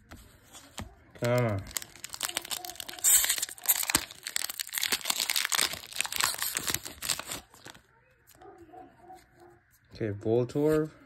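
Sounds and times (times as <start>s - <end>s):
foil crackling: 0.6s - 7.9s
foil wrapper tearing: 1.2s - 7.8s.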